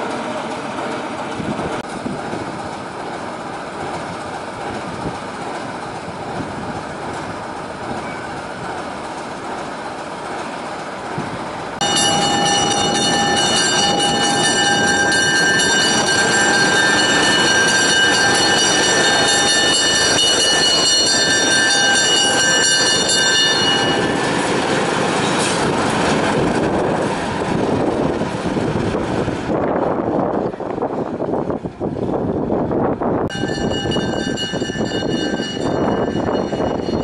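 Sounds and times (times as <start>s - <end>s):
diesel locomotive running: 0.0s - 37.0s
train wheels squealing: 7.9s - 8.4s.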